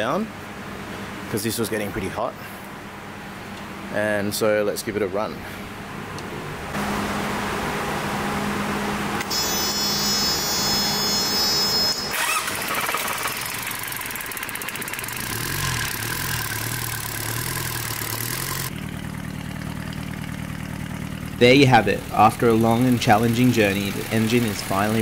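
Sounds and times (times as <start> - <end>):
diesel engine running: 5.8 - 25.0
starter motor cranking: 12.1 - 25.0.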